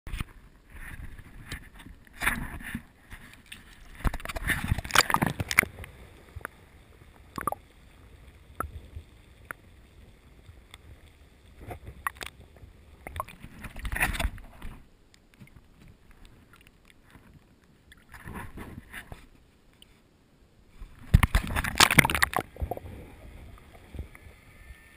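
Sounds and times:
seawater splashing: 2.2s - 14.6s
sharp underwater clicks: 3.4s - 6.6s, 7.3s - 7.6s, 11.9s - 12.4s, 13.0s - 14.4s, 21.0s - 22.8s.

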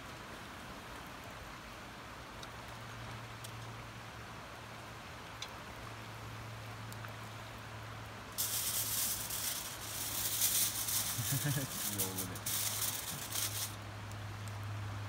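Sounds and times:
aluminium foil crinkling: 8.4s - 13.8s.

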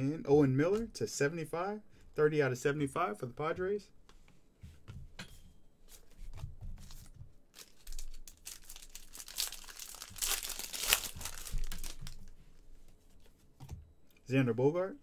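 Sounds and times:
foil wrapper tearing and crinkling: 7.5s - 12.3s.

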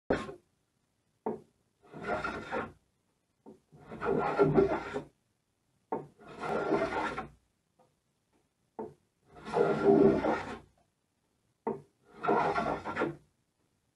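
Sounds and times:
hand plane shaving wood: 0.1s - 0.4s, 1.8s - 2.8s, 3.7s - 5.1s, 6.1s - 7.4s, 9.3s - 10.7s, 12.1s - 13.2s
sharp scrape: 0.1s - 0.4s, 1.9s - 2.8s, 3.8s - 5.1s, 6.2s - 7.4s, 9.3s - 10.7s, 12.1s - 13.2s.

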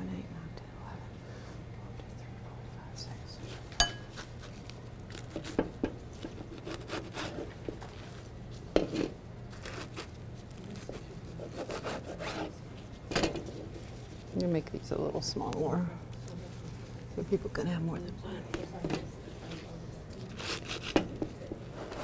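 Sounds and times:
steady low hum: 0.0s - 22.0s
knife sawing food: 6.4s - 7.5s, 11.4s - 12.6s, 20.3s - 21.0s.

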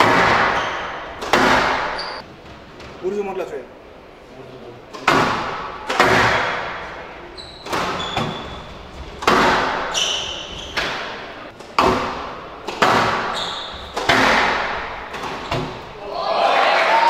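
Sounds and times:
squash ball hitting rackets and walls: 0.0s - 3.0s, 4.9s - 16.0s
shoes squeaking on court floor: 0.5s - 2.3s, 7.3s - 11.4s, 13.1s - 14.2s, 14.8s - 16.0s.

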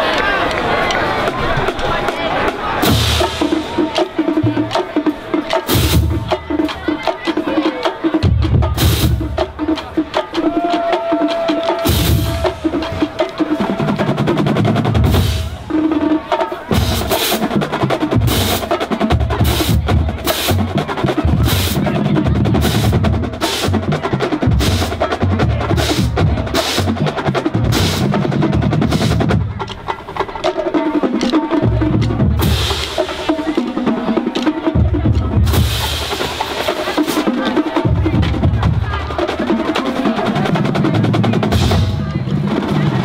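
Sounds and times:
snare drums: 0.9s - 43.0s
bass drums: 2.8s - 6.9s, 8.2s - 29.9s, 31.6s - 33.3s, 34.7s - 36.7s, 37.8s - 39.5s, 40.4s - 43.0s.

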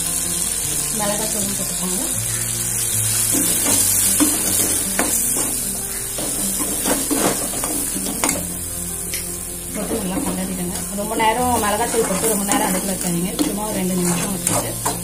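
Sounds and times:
vegetables sizzling in oil: 0.0s - 15.0s
metal spatula scraping pan: 3.2s - 8.5s, 9.7s - 15.0s.

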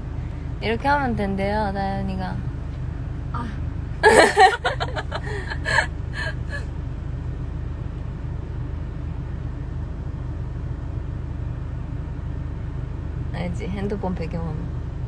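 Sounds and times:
vehicle cabin rumble: 0.0s - 15.0s
breathy laugh: 4.0s - 6.6s.

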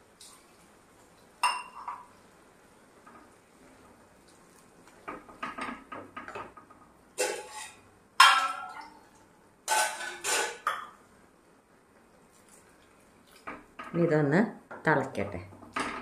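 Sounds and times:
metal kitchenware clattering: 1.4s - 2.1s, 7.2s - 9.0s, 9.7s - 11.0s.

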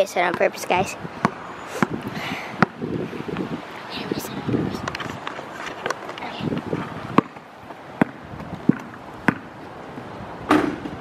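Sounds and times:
basketball bouncing on asphalt: 0.0s - 3.6s, 5.2s - 9.8s, 10.4s - 11.0s.

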